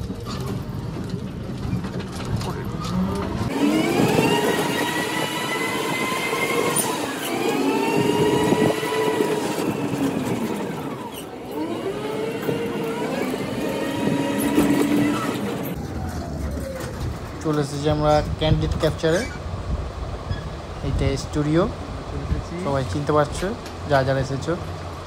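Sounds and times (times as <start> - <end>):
road rattle: 0.0 - 25.0
electric motor whining: 3.5 - 15.8.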